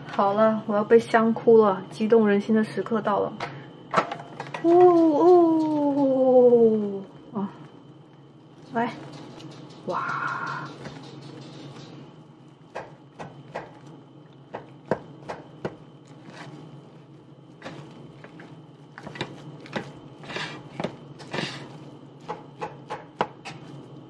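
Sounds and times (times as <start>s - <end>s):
rice paddle scraping pot: 17.6s - 21.8s.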